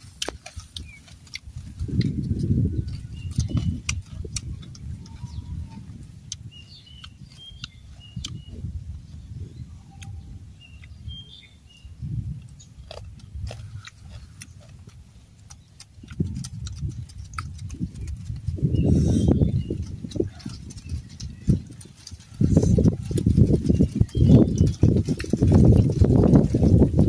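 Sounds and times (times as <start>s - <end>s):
high bird chirps: 6.4s - 8.7s, 9.5s - 12.0s, 18.0s - 25.0s.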